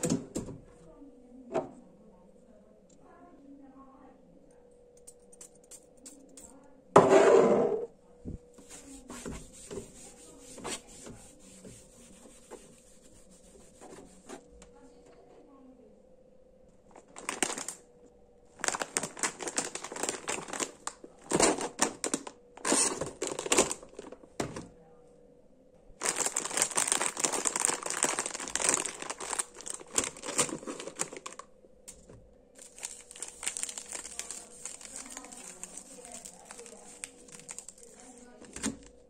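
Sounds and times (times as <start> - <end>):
plastic snack packets crinkling: 16.9 - 17.8, 18.5 - 24.3, 26.0 - 31.5, 32.6 - 39.0.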